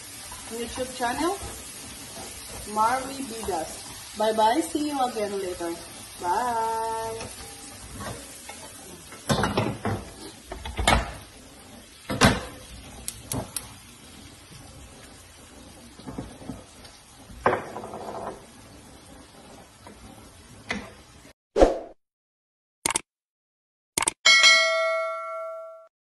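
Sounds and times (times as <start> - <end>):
pans and wooden spoon clattering: 7.0 - 11.3, 17.3 - 18.5.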